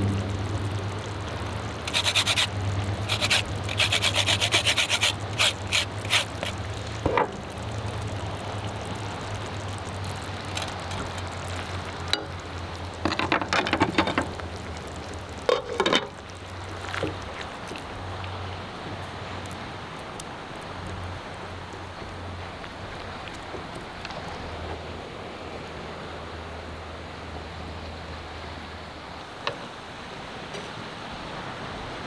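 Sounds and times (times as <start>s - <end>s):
zest grater rasping: 1.9s - 2.5s, 3.1s - 6.6s.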